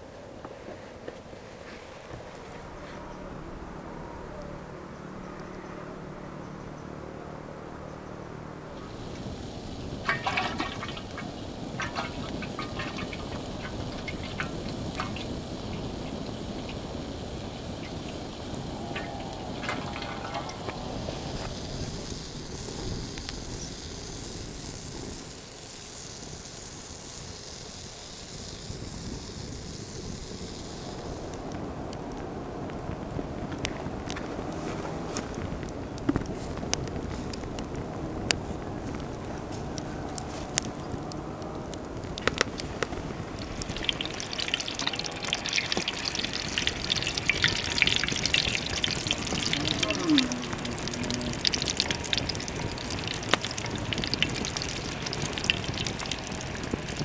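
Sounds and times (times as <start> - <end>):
wood fire burning: 0.0 - 57.0
cooking oil being poured: 8.8 - 31.3, 39.7 - 57.0.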